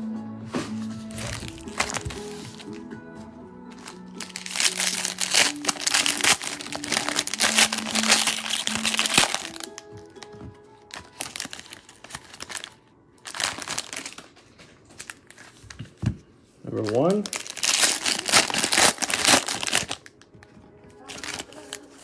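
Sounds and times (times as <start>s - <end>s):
soft background music: 0.0s - 22.0s
foil wrapper crinkling: 1.1s - 2.8s, 3.7s - 15.8s, 16.7s - 22.0s.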